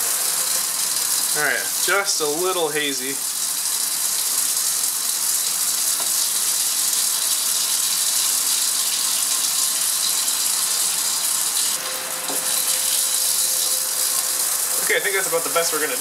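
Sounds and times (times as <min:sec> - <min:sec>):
vacuum pump hissing: 0:10.7 - 0:16.0.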